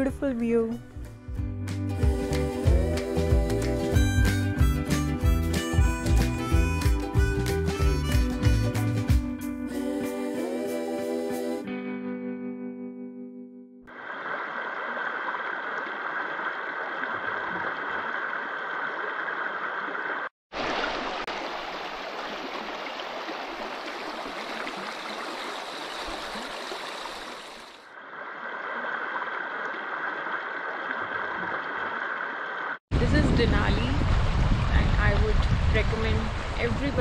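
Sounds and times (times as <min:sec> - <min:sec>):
river rushing over gravel: 0:20.5 - 0:27.7.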